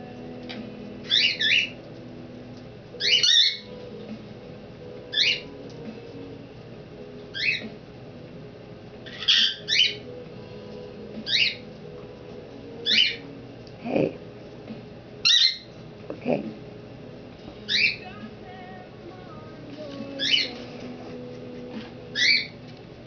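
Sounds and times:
parrot chirping calls: 1.1s - 1.8s, 3.0s - 3.7s, 5.1s - 5.5s, 7.3s - 7.7s, 9.0s - 10.0s, 11.3s - 11.6s, 12.8s - 13.2s, 15.2s - 15.7s, 17.7s - 18.0s, 20.2s - 20.6s, 22.1s - 22.6s.

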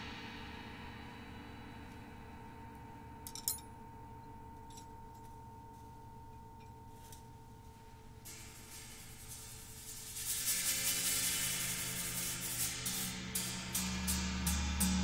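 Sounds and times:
soft hiss: 0.0s - 15.0s
sharp metallic clink: 3.2s - 3.8s.

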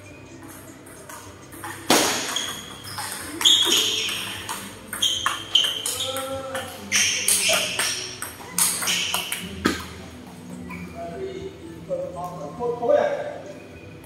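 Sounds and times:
voices in background: 3.2s - 13.9s.

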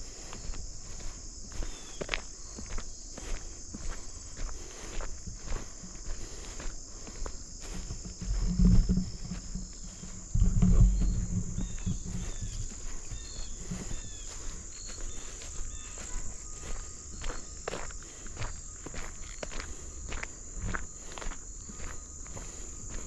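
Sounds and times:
crickets and insects chorus: 0.0s - 23.0s
footsteps walking: 0.0s - 23.0s
low rumbles: 7.6s - 14.1s.

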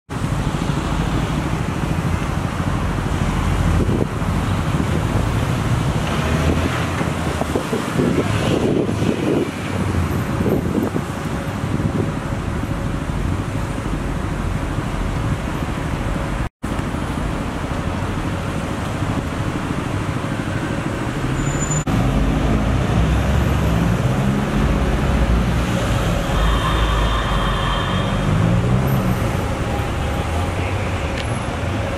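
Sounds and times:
police cars passing: 0.1s - 31.9s
road traffic passing: 0.1s - 31.9s
wind rumbling on microphone: 1.2s - 15.5s.

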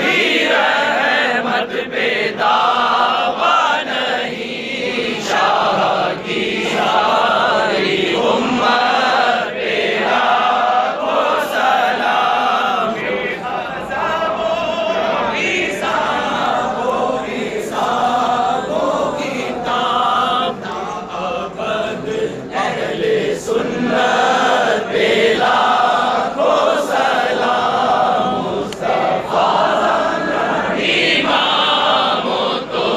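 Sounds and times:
crowd of men chanting: 0.0s - 32.9s.

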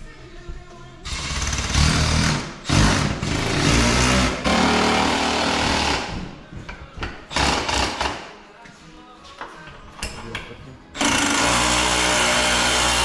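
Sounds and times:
impact driver driving screws: 11.0s - 13.0s.

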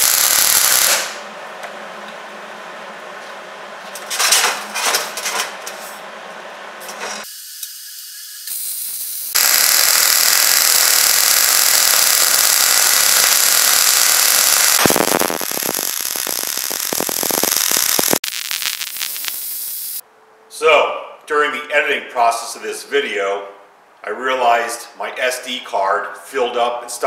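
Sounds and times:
welding arc sizzling: 0.0s - 1.2s, 7.0s - 20.0s.

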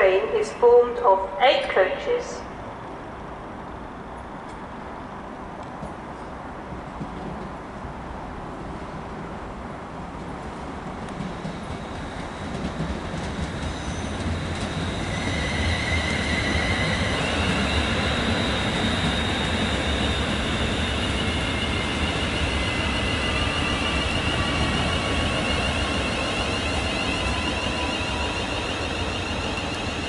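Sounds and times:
train wheels rumbling: 5.6s - 30.0s
high-pitched train whine: 11.0s - 30.0s.

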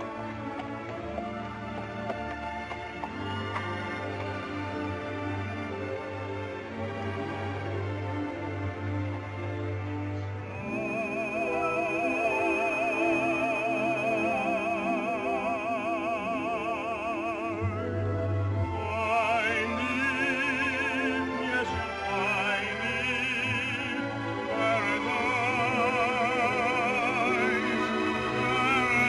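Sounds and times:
operatic orchestral music: 0.0s - 29.0s.

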